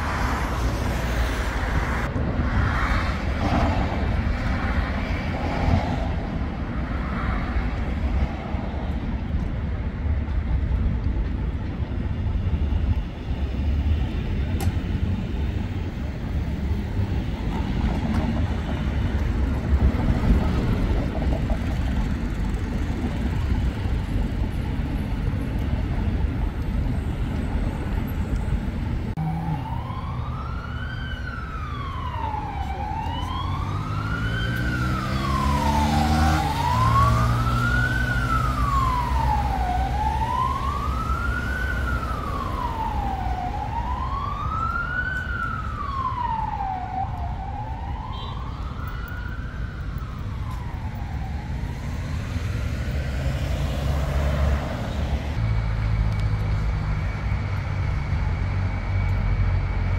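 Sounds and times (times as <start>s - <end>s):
city traffic rumble: 0.0s - 59.9s
emergency siren wailing: 29.1s - 59.9s.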